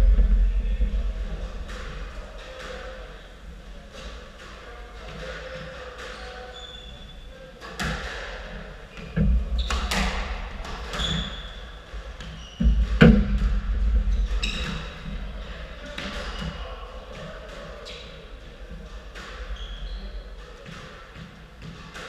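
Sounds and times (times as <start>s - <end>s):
court shoes squeaking: 1.5s - 22.0s
thumping footsteps: 12.0s - 15.3s.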